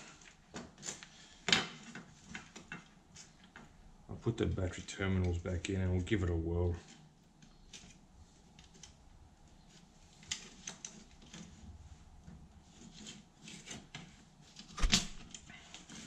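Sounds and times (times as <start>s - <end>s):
light clicks and rubs of plastic: 4.4s - 16.0s.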